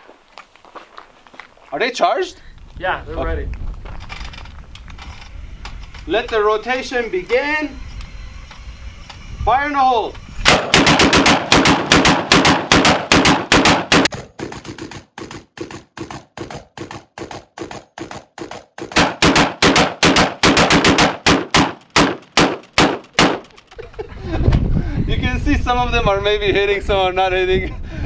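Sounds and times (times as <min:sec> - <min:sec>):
rapid rifle gunfire: 0:10.5 - 0:23.5.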